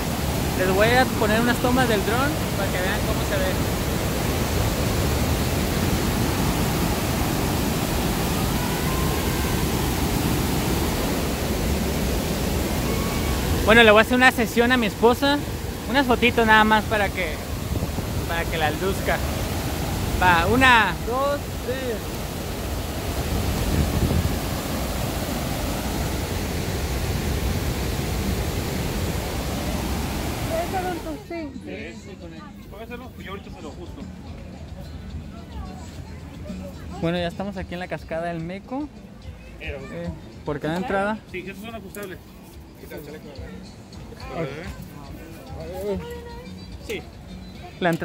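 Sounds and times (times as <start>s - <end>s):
waterfall rushing: 0.0s - 31.4s.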